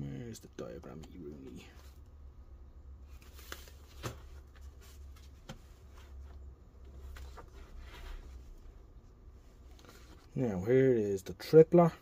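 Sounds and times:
steady low hum: 0:00.0 - 0:12.0
paper pages rustling: 0:03.1 - 0:08.6.

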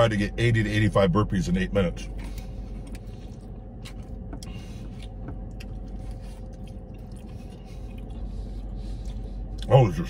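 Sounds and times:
car cabin hum: 0:00.0 - 0:10.0
chewing: 0:02.1 - 0:09.7.

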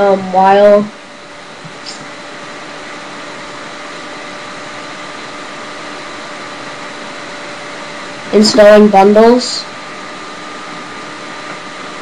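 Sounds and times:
faint hum tones: 0:00.0 - 0:12.0.

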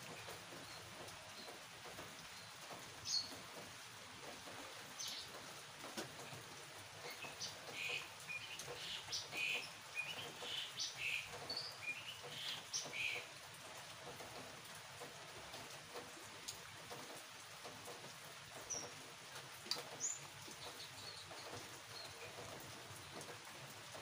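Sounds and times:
faint rain hiss: 0:00.0 - 0:24.0
small birds chirping: 0:00.1 - 0:03.6, 0:04.5 - 0:05.4, 0:07.0 - 0:13.3, 0:18.5 - 0:19.0, 0:19.7 - 0:23.4.

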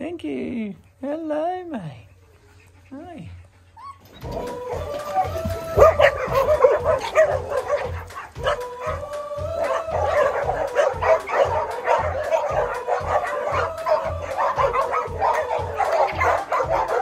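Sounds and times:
dogs whimpering and yipping: 0:02.0 - 0:17.0
background music with steady beat: 0:04.0 - 0:17.0.

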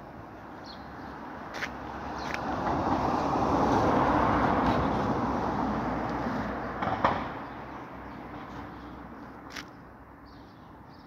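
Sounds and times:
vehicle passing by: 0:01.5 - 0:08.8.

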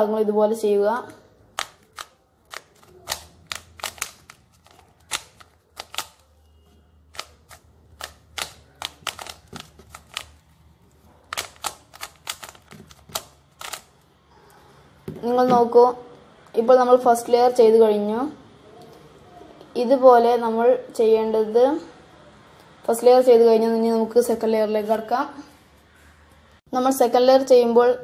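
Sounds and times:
puzzle cube layers clicking: 0:01.5 - 0:06.3, 0:07.1 - 0:10.5, 0:11.2 - 0:14.0.

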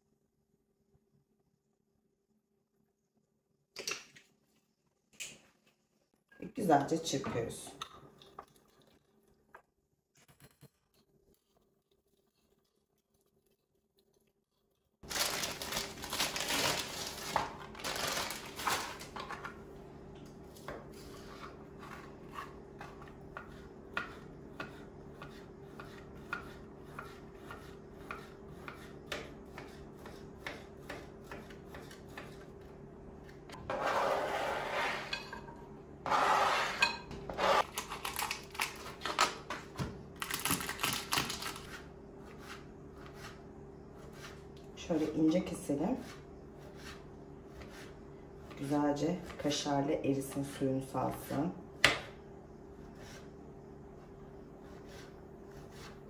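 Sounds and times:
faint steady hum: 0:36.8 - 0:56.0.

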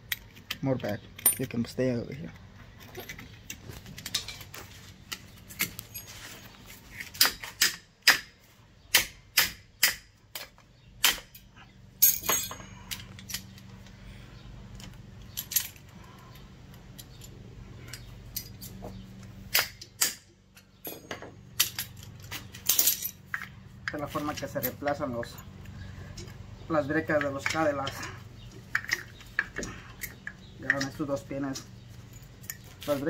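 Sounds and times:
metal parts clicking and clanking: 0:00.0 - 0:07.8, 0:09.8 - 0:14.0, 0:14.7 - 0:33.0
faint low hum: 0:10.3 - 0:33.0.

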